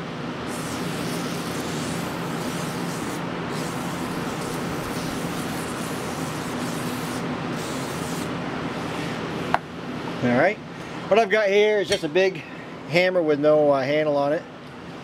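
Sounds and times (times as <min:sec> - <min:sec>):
aerosol spray hissing: 0:00.5 - 0:08.3.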